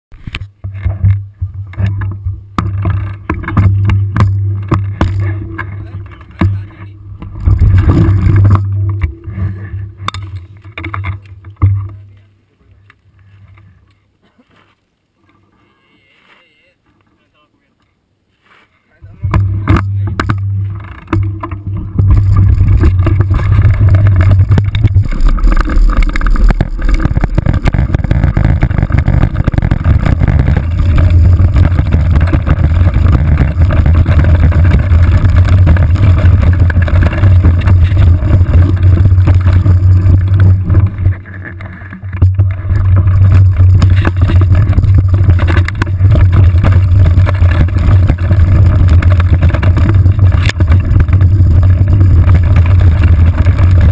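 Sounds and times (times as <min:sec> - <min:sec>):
bike rattling over rocky trail: 0:00.1 - 0:15.8, 0:19.0 - 0:53.9
tyres crunching over stones: 0:00.2 - 0:15.8, 0:19.2 - 0:53.9.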